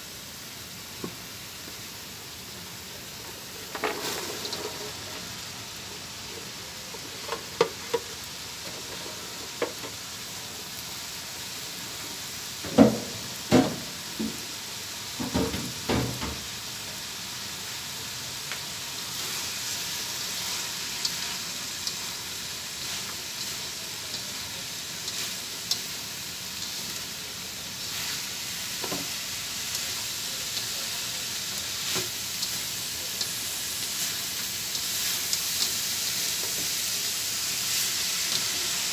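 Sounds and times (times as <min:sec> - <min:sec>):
beans sizzling in hot oil: 0:00.0 - 0:38.9
spatula scraping a wok: 0:03.6 - 0:05.4.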